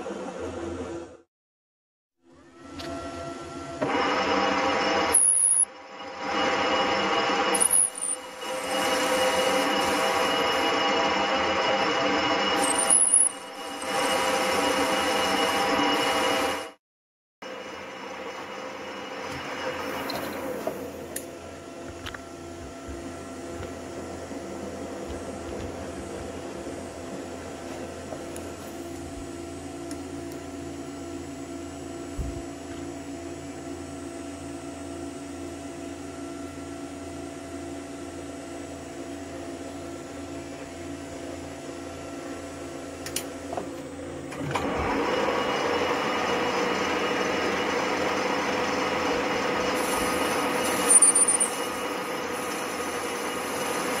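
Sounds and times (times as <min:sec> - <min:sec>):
lathe tool cutting metal: 0:03.8 - 0:16.8, 0:45.0 - 0:54.0.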